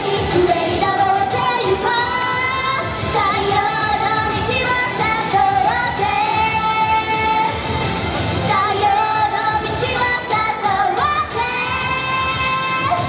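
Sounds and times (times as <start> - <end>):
backing music: 0.0 - 13.0
woman singing pop song: 0.0 - 13.0.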